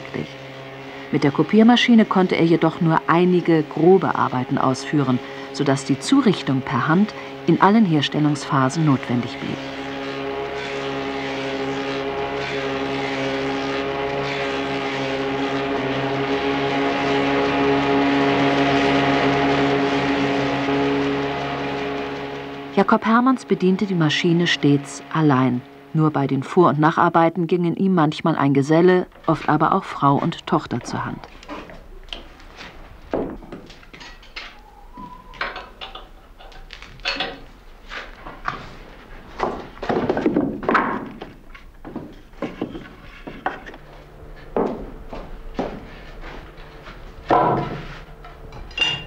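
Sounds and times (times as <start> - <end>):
lathe machine drone: 0.0 - 27.3, 40.8 - 49.0
machine knocks and scrapes: 41.9 - 48.8.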